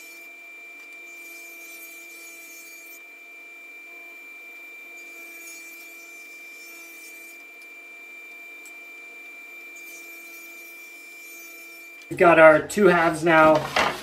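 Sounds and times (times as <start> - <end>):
saw blade cutting wood: 0.0 - 3.1, 4.8 - 8.8, 9.5 - 12.2
table saw whining: 0.0 - 14.0.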